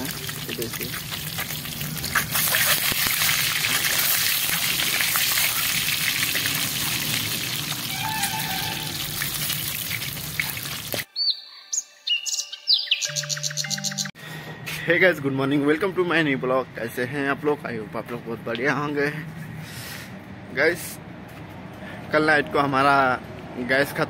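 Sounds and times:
eggs sizzling in hot oil: 0.0s - 11.1s
chirping bird-like sounds: 11.1s - 14.2s
music jingle: 12.9s - 16.0s.

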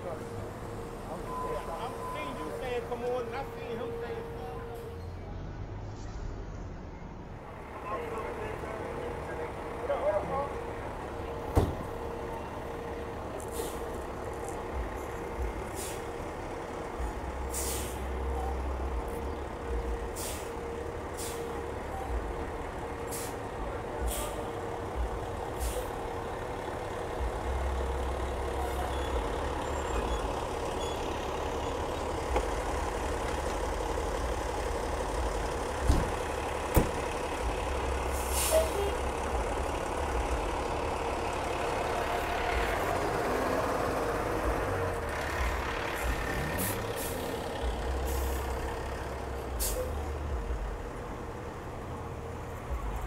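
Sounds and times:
truck diesel engine running: 0.0s - 5.0s, 7.5s - 53.0s
air brake hisses: 13.4s - 13.9s, 15.7s - 16.2s, 17.5s - 18.0s, 20.1s - 20.6s, 21.2s - 21.6s, 23.1s - 23.4s, 24.0s - 24.4s, 25.6s - 26.0s, 38.1s - 38.9s, 49.6s - 50.0s.

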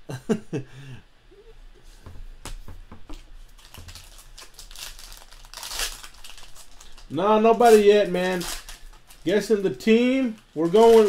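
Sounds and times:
foil wrapper crinkling and tearing: 3.5s - 11.0s.

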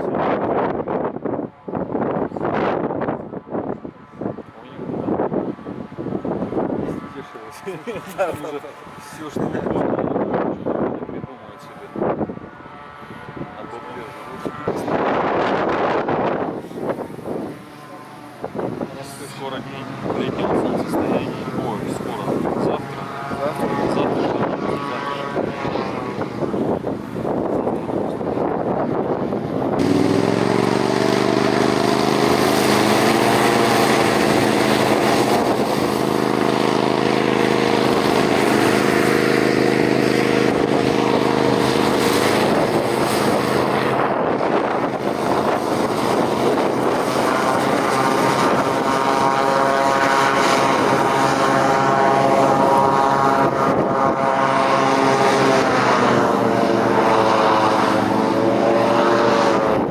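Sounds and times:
hovercraft engine drone: 0.0s - 59.9s
rushing air: 14.0s - 59.9s.

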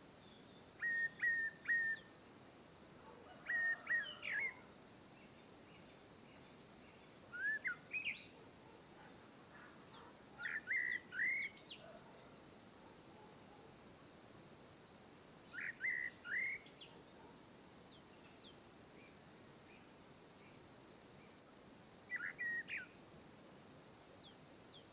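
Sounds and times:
bird calling clear notes: 0.8s - 2.1s, 15.5s - 16.9s.

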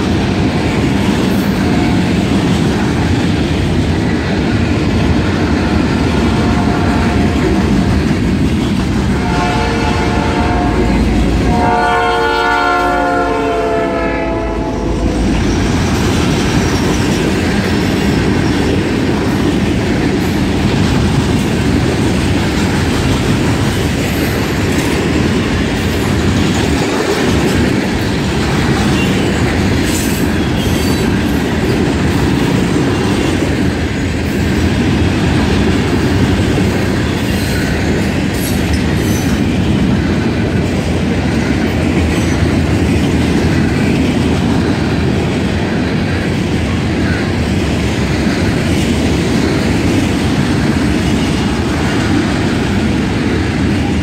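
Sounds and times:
train horn: 6.2s - 7.9s, 9.0s - 15.2s
freight cars rumbling and clattering: 14.8s - 54.0s.

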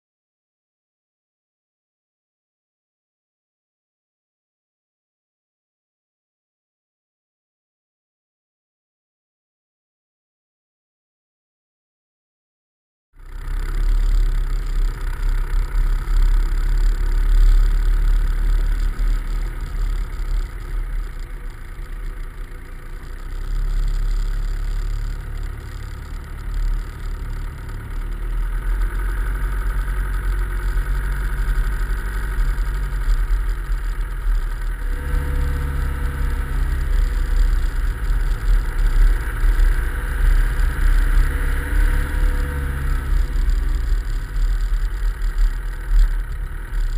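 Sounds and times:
muffled car engine: 13.2s - 46.9s
road noise: 13.2s - 46.9s.

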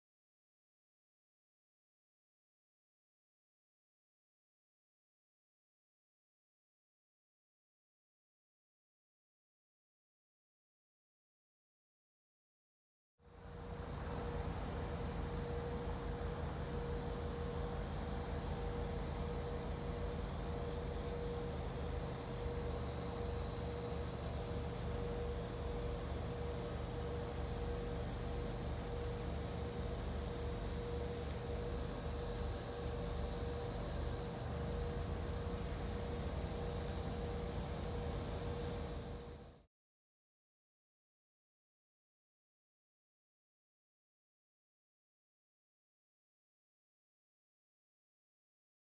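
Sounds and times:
diesel locomotive engine rumble: 13.3s - 39.6s
insect trill: 13.3s - 39.6s.

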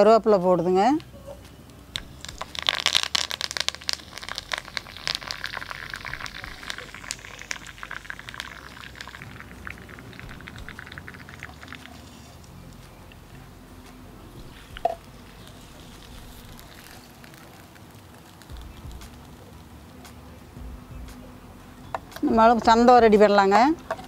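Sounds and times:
leaves crackling in hot oil: 1.9s - 12.9s, 14.4s - 20.3s.

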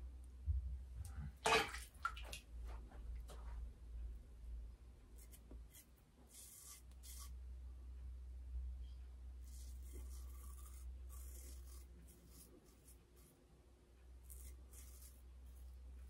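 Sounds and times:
razor scraping stubble: 5.2s - 7.3s, 9.5s - 13.4s, 14.2s - 15.8s.

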